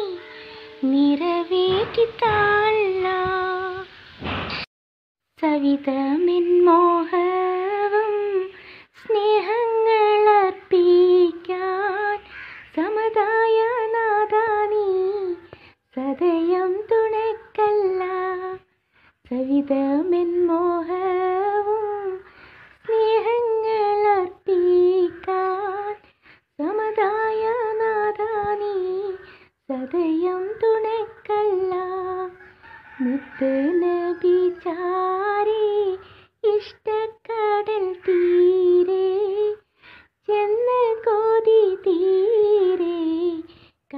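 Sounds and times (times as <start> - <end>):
woman singing unaccompanied: 0.0 - 4.0, 5.4 - 43.9.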